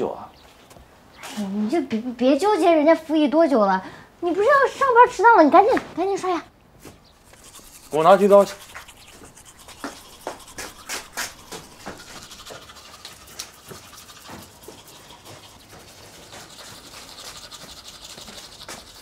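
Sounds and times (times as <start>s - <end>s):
toothbrush scrubbing teeth: 7.2s - 19.0s.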